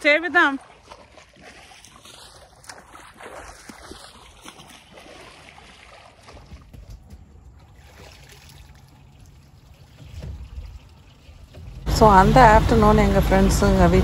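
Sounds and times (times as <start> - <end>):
water lapping against boat hull: 0.0 - 14.0
low steady hum: 7.0 - 14.0.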